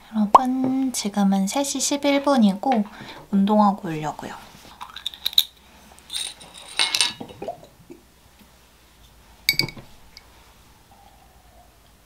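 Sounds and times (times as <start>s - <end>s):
bottle cap twisting rattles: 4.8s - 7.2s
glass clinking on table: 9.5s - 9.9s.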